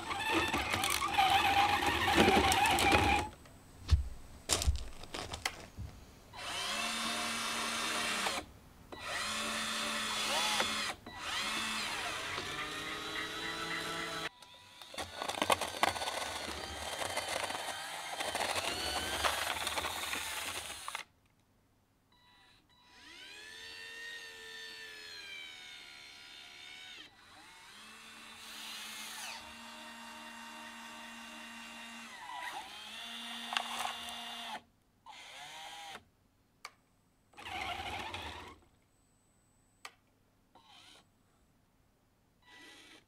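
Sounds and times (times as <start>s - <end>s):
small electric motors whining: 0.0s - 3.3s, 9.0s - 21.1s, 22.2s - 36.0s, 37.4s - 38.6s, 40.6s - 41.1s, 42.4s - 43.0s.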